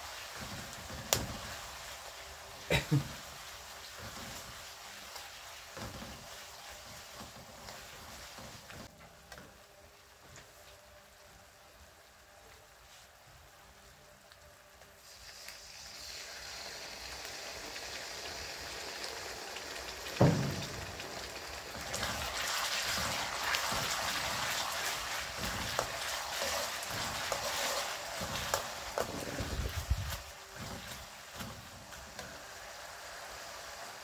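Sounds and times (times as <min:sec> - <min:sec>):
oil sizzling in wok: 0:00.0 - 0:34.0
thump: 0:20.2 - 0:20.9
metal spatula scraping wok: 0:21.9 - 0:32.4.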